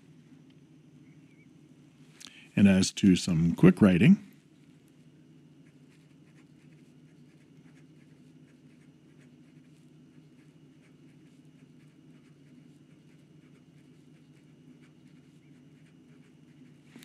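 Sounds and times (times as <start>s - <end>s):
pen nib scratching paper: 5.0s - 17.0s.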